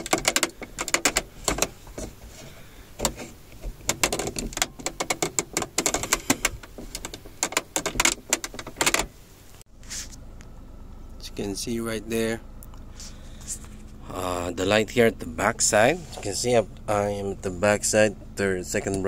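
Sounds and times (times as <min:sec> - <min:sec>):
plastic pick scraping and clicking: 0:00.0 - 0:09.1.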